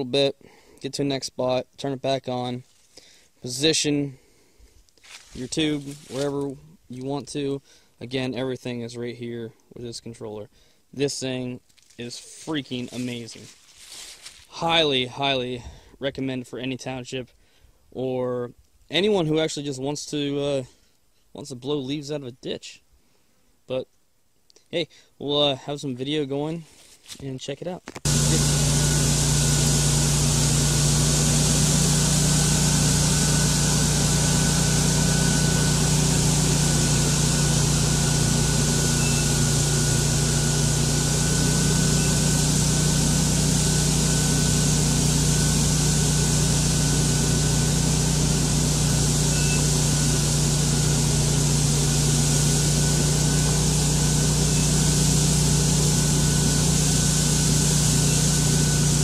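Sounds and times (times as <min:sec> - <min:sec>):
leaf blower engine hum: 0:05.0 - 0:06.5, 0:28.0 - 0:59.0.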